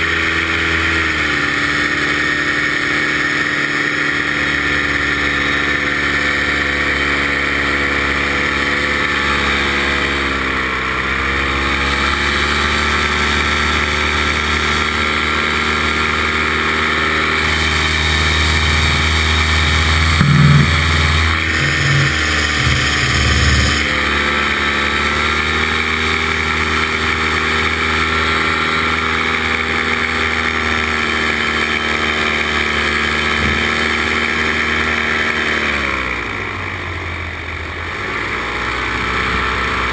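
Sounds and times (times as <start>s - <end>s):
paramotor engine and propeller: 0.0s - 39.9s
low thumps: 19.5s - 24.0s.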